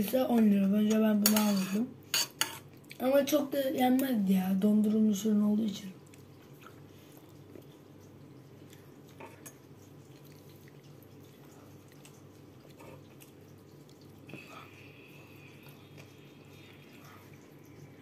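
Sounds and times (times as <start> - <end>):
steady low hum: 0.0 - 18.0
person chewing wetly: 6.0 - 18.0.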